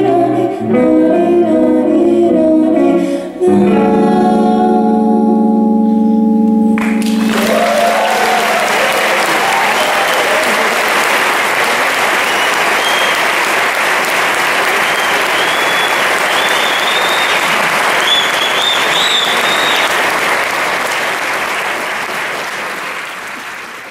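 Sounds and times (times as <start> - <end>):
audience applauding: 6.8 - 23.9.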